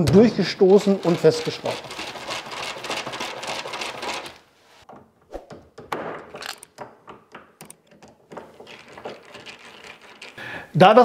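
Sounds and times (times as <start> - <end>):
screwdriver clicks and scraping: 6.3 - 6.9, 7.6 - 10.4.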